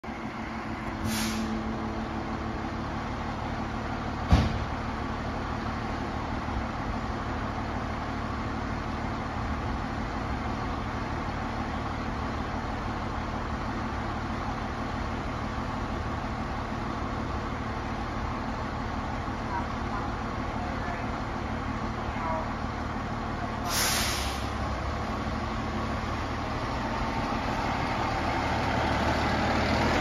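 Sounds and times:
diesel engine idling: 0.0s - 30.0s
sharp thump: 4.3s - 4.7s.

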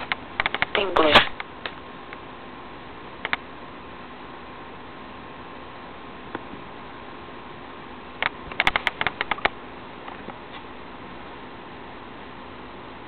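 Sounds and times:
sharp clicks and taps: 0.0s - 1.8s, 8.2s - 9.6s
steady hum and hiss: 0.0s - 13.0s.

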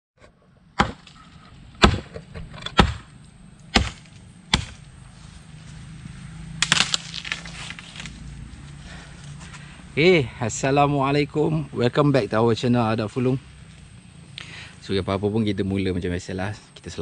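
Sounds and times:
blade chopping branch: 0.8s - 4.9s, 6.6s - 8.2s
wood cracking: 6.6s - 8.3s.

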